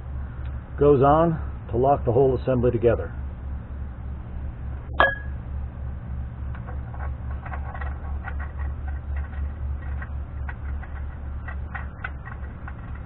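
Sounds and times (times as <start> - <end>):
ringing metal clink: 5.0 - 5.4.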